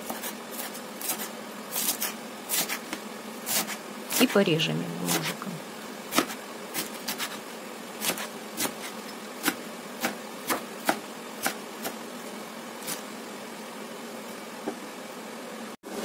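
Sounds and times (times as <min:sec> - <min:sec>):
knife chopping on wooden board: 0:00.0 - 0:03.8, 0:05.1 - 0:05.4, 0:06.1 - 0:07.4, 0:08.0 - 0:12.0.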